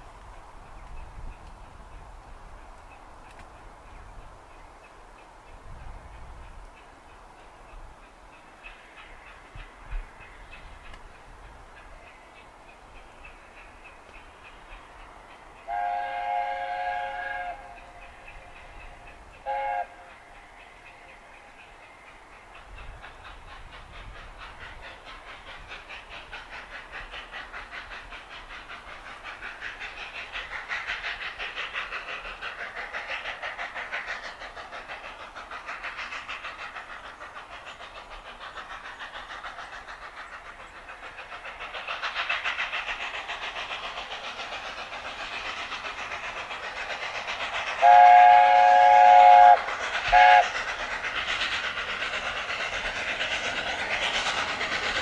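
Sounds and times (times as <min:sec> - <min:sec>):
steam locomotive chugging: 0:00.0 - 0:55.0
steam whistle blasts: 0:15.7 - 0:17.8, 0:19.4 - 0:20.1, 0:47.8 - 0:50.5.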